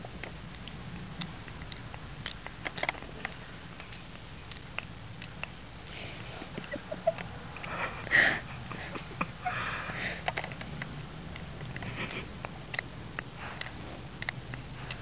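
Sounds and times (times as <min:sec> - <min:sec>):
puppy ticking clicks: 0:00.0 - 0:05.8, 0:10.2 - 0:15.0
puppy snuffling breaths: 0:05.8 - 0:06.7, 0:07.5 - 0:10.5, 0:11.6 - 0:15.0.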